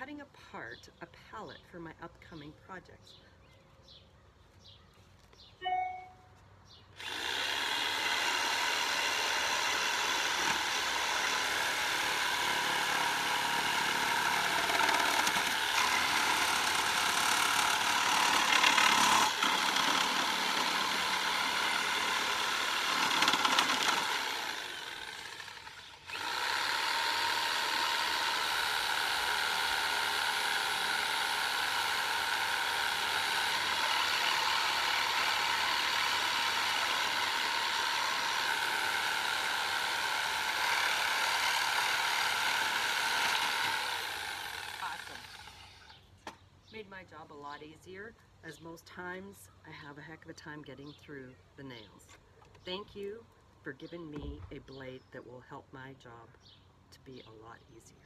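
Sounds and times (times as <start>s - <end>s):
reciprocating saw cutting wood: 7.0s - 46.0s.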